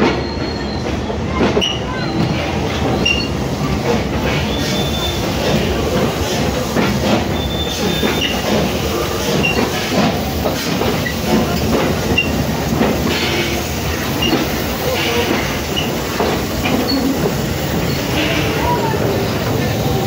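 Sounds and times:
train rumble: 0:00.0 - 0:20.0.

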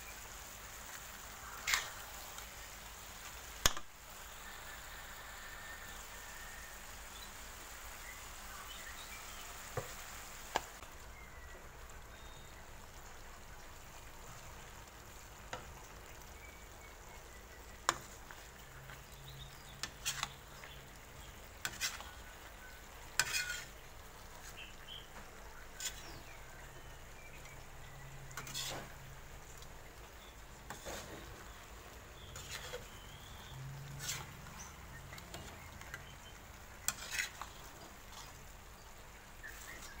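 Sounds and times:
food sizzling in a wok: 0:00.0 - 0:40.0
metal spatula scraping a pan: 0:01.5 - 0:02.4, 0:19.2 - 0:20.8, 0:21.6 - 0:22.3, 0:22.9 - 0:24.6, 0:25.6 - 0:26.4, 0:28.3 - 0:29.1, 0:30.2 - 0:38.4.

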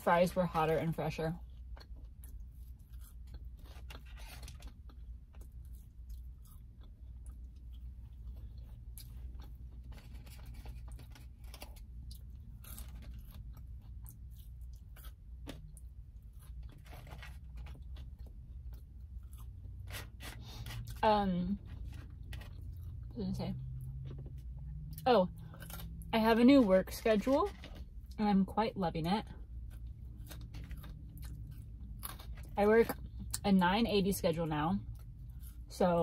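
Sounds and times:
steady low hum: 0:00.0 - 0:36.0
chewing fries: 0:01.4 - 0:21.0, 0:21.6 - 0:26.1, 0:29.4 - 0:33.4, 0:34.8 - 0:35.8.

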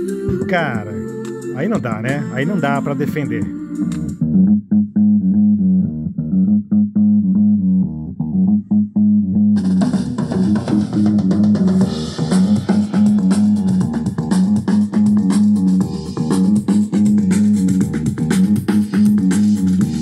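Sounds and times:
drums: 0:00.0 - 0:03.3, 0:09.6 - 0:20.0
band music through portable speaker: 0:00.0 - 0:05.8, 0:06.4 - 0:20.0
pulsing bass line: 0:00.0 - 0:20.0.

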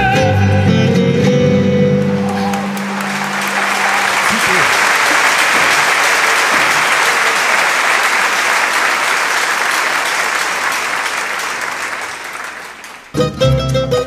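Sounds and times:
guitar ensemble plucked chords: 0:00.0 - 0:04.7, 0:13.1 - 0:14.0
audience applauding: 0:02.1 - 0:13.2.

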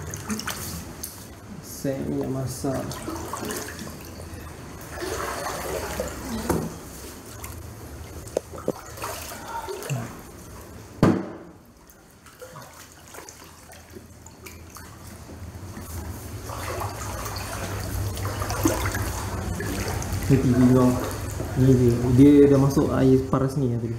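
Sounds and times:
water sloshing from wading: 0:00.0 - 0:23.1
sharp knock: 0:11.0 - 0:11.6.

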